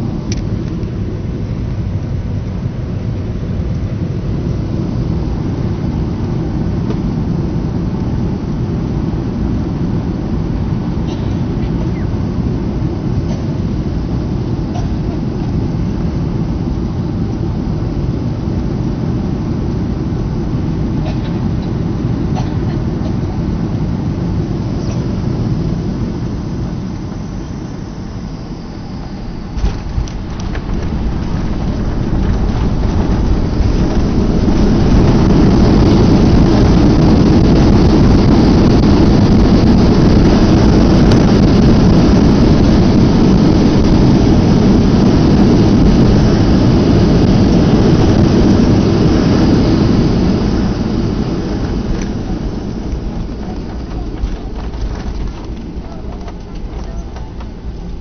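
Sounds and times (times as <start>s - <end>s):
jet engine and air noise: 0.0s - 58.0s
reverse thrust roar: 21.9s - 58.0s.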